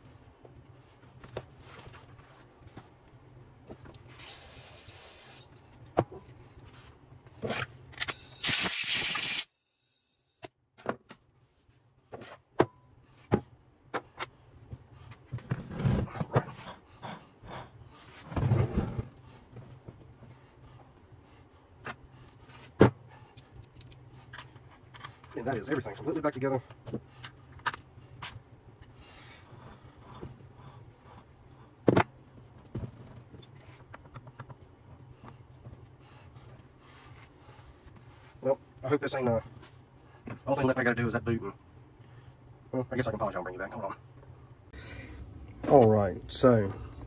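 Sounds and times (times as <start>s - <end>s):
metal parts and tools clinking: 7.9s - 9.5s.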